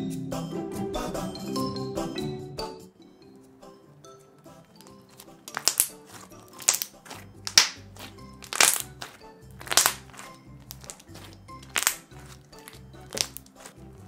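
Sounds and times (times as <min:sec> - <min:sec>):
background music: 0:00.0 - 0:14.0
crackly slime squishes: 0:04.8 - 0:14.0.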